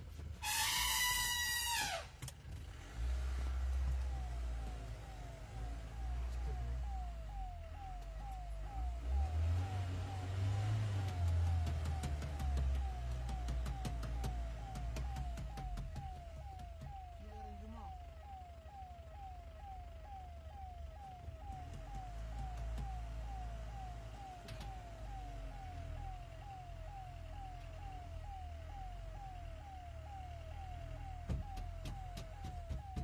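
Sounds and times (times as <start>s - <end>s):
vehicle engine running rough: 2.6s - 19.7s
reversing alarm beeping: 3.7s - 33.0s.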